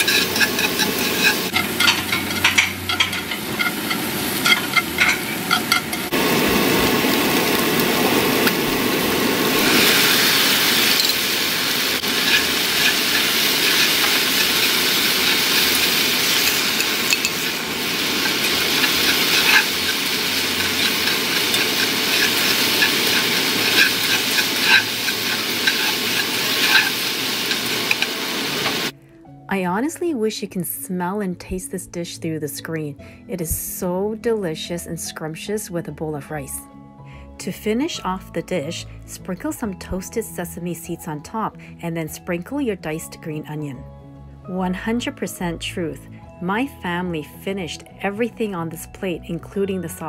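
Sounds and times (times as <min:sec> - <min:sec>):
shrimp sizzling in a pan: 0:00.0 - 0:28.9
chopsticks clicking against pan: 0:12.2 - 0:28.8.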